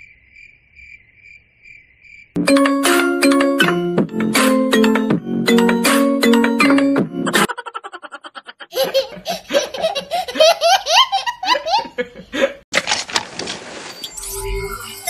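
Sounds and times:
child laughing: 7.3s - 12.6s.

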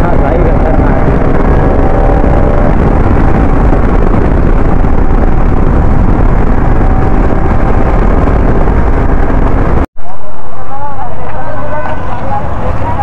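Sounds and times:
road noise: 0.0s - 13.0s
wind rumble on microphone: 0.0s - 13.0s.

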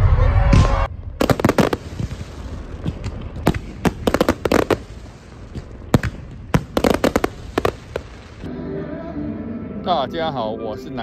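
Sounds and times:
fireworks bangs and crackles: 0.3s - 8.5s.

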